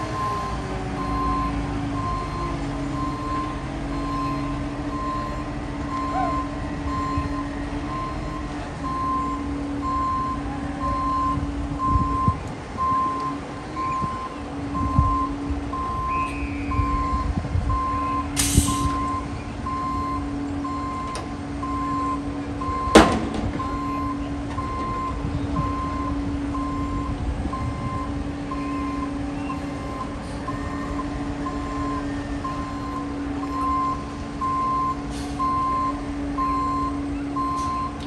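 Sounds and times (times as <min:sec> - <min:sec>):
truck engine hum: 0:00.0 - 0:38.0
backup alarm beeping: 0:00.2 - 0:38.0
air hiss: 0:18.4 - 0:19.0.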